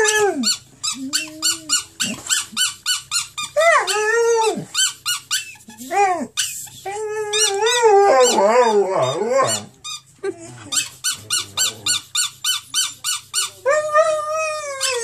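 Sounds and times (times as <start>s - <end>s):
dog whining and howling: 0.0s - 2.2s, 3.4s - 9.8s, 11.2s - 12.1s, 13.7s - 15.0s
dog squeaking: 0.0s - 15.0s.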